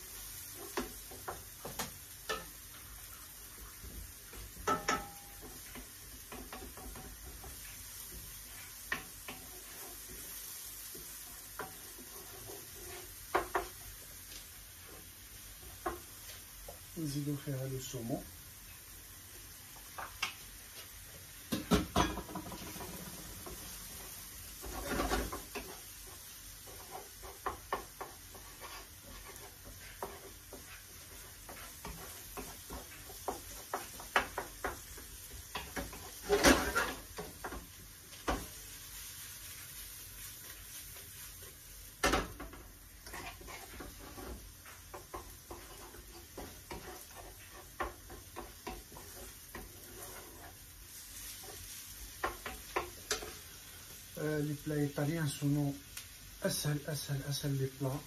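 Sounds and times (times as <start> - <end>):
food sizzling in pan: 0.0 - 58.0
wooden spatula scraping pan: 0.1 - 18.0, 21.8 - 55.4
spatula knocking on pan: 3.8 - 8.3, 13.2 - 13.8, 21.5 - 23.6, 26.6 - 36.3.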